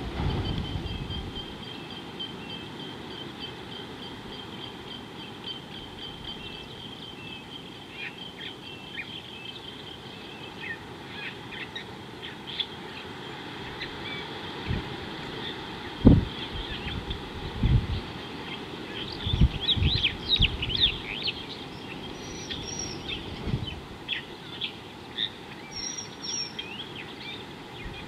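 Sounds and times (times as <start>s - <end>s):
birds calling high-pitched notes: 18.0s - 28.0s.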